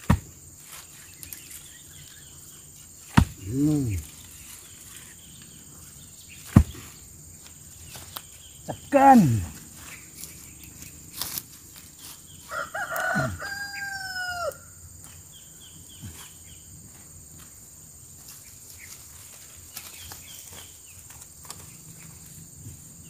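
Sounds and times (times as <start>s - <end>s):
rooster crowing: 12.4s - 14.8s.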